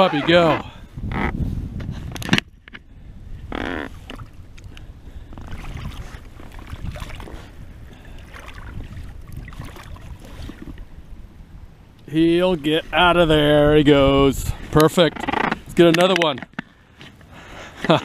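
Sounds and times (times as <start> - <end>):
wind rumbling on microphone: 0.0 - 16.6
water washing around rocks: 8.1 - 10.8.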